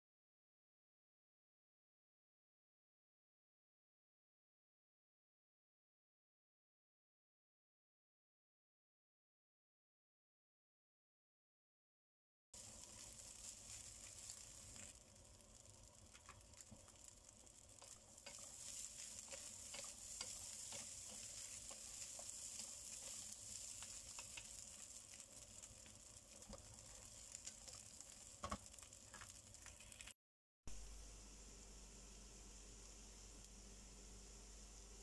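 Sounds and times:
rice sizzling in a wok: 12.6 - 35.0
spatulas scraping and tapping pan: 16.1 - 30.1.

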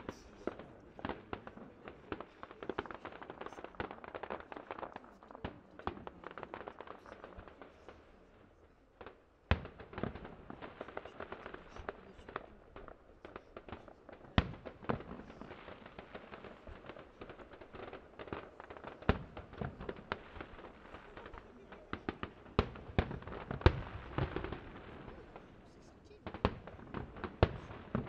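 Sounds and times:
crackling and popping fireworks: 0.0 - 28.0
firework shells bursting with bangs: 9.0 - 28.0.

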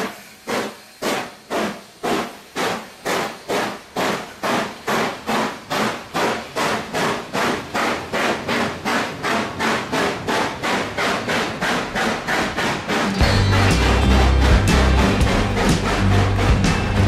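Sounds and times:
steam locomotive chuffing: 0.0 - 17.0
carriages rumbling past: 11.5 - 17.0.

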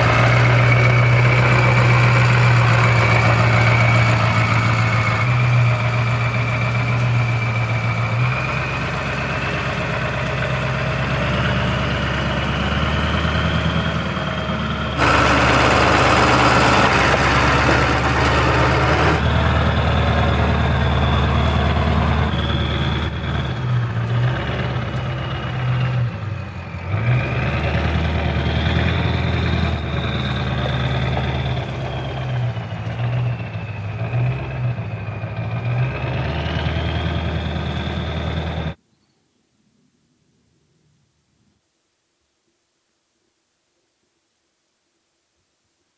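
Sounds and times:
diesel truck engine at low revs: 0.0 - 38.8
turbo whine: 0.0 - 38.8
harsh noise: 15.0 - 19.3.

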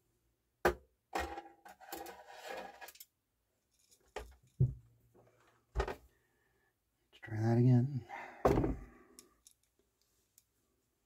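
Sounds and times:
screwdriver scraping and rattling: 1.7 - 3.1.

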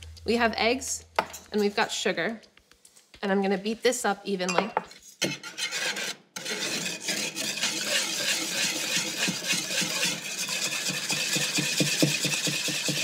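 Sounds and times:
whisk beating in wooden bowl: 6.4 - 13.0.

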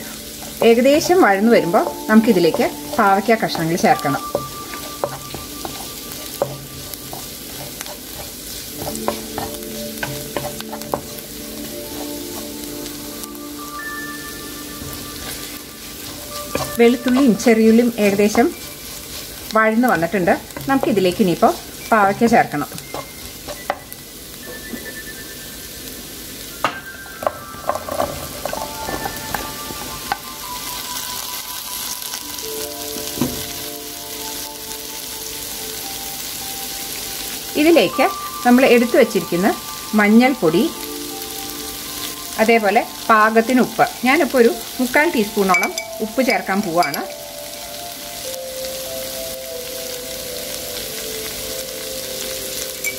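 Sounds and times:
vegetables sizzling in oil: 0.0 - 52.9
wooden spatula scraping pan: 0.4 - 11.2, 15.2 - 19.5, 27.6 - 30.2.

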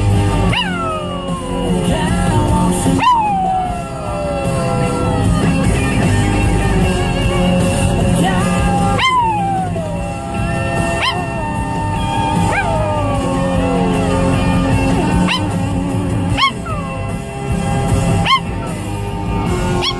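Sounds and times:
country music on car radio: 0.0 - 19.9
dog howling: 0.3 - 5.8, 8.4 - 15.6, 16.3 - 17.1, 18.1 - 18.7.

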